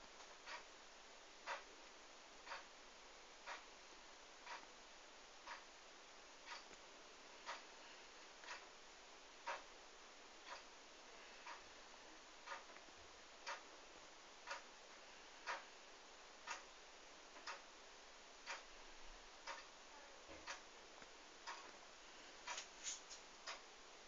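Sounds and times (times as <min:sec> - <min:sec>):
clock ticking: 0:00.2 - 0:00.7, 0:01.4 - 0:01.7, 0:02.4 - 0:02.7, 0:03.4 - 0:03.7, 0:04.4 - 0:04.7, 0:05.4 - 0:05.7, 0:06.4 - 0:06.8, 0:07.4 - 0:07.7, 0:08.4 - 0:08.8, 0:09.4 - 0:09.8, 0:10.4 - 0:10.8, 0:11.4 - 0:11.8, 0:12.4 - 0:12.8, 0:13.4 - 0:13.8, 0:14.4 - 0:15.7, 0:16.4 - 0:17.8, 0:18.4 - 0:21.8, 0:22.4 - 0:22.7, 0:23.4 - 0:23.7.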